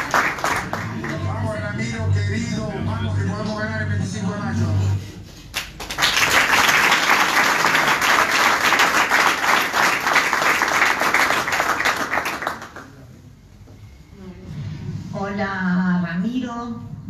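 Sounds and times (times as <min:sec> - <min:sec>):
audience applauding: 0:00.0 - 0:01.4, 0:05.5 - 0:13.0.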